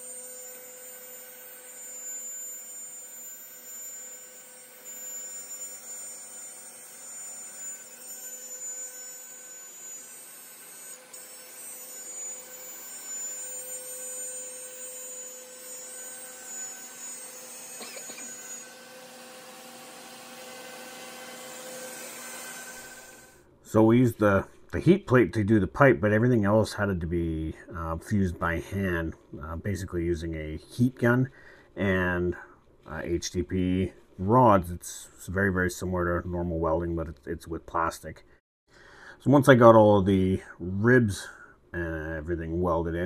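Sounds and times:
router spindle whining: 0.0s - 23.4s
shop vacuum running: 15.8s - 23.4s.

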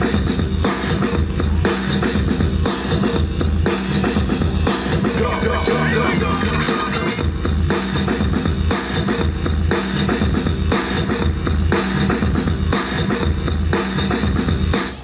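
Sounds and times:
dance music with drum beat and bass: 0.0s - 15.0s.

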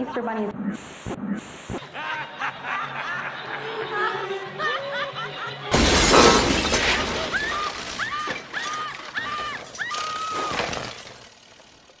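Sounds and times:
loud shattering crash: 5.7s - 11.9s.

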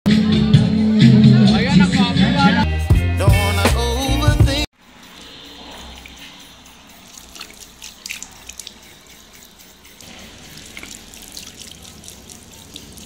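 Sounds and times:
tap water running into basin: 4.9s - 13.0s.

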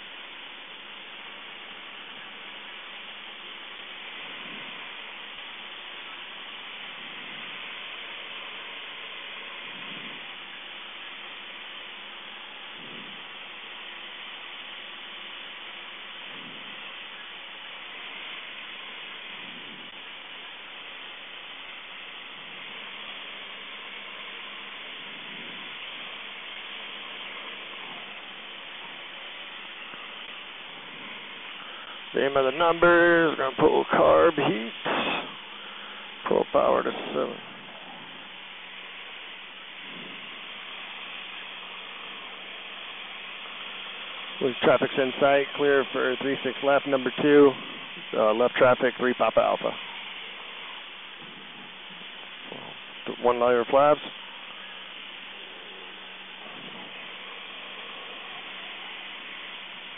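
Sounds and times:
small airplane in flight: 0.0s - 38.6s, 39.5s - 40.4s
faint aircraft engine drone: 0.0s - 59.9s
faint low hum: 0.0s - 59.9s
rushing wind: 4.0s - 15.4s.

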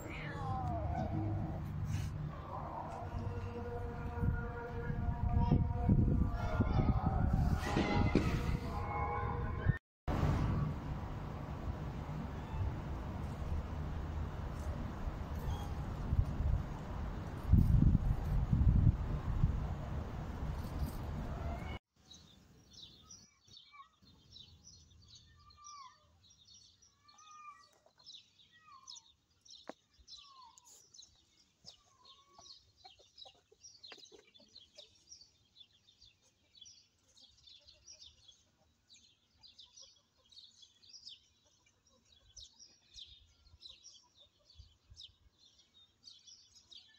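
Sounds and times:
small birds chirping: 20.6s - 46.9s.

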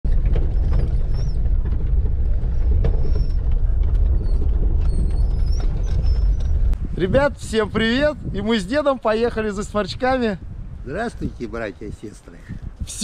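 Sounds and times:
vehicle engine and road rumble: 0.0s - 13.0s.

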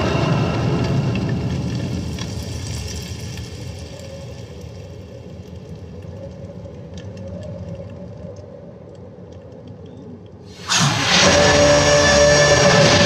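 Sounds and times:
faint clicks: 1.1s - 10.5s.

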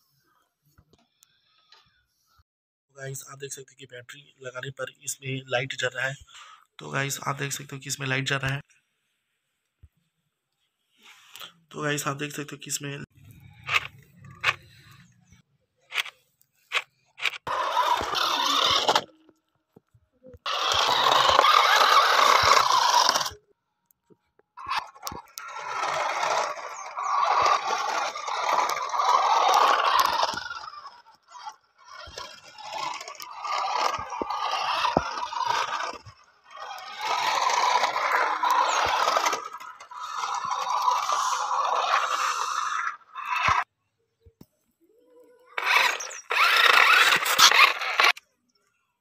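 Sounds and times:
toy car motor running: 1.1s - 2.0s, 13.2s - 43.7s, 45.0s - 48.3s
plastic wheels scraping concrete: 13.2s - 23.4s, 24.3s - 43.7s, 45.6s - 48.2s.

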